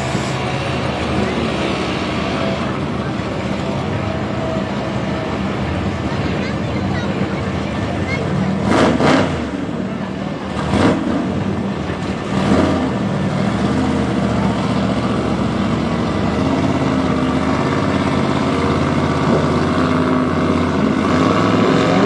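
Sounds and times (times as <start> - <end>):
motorcycle engine revving: 8.5 - 22.0.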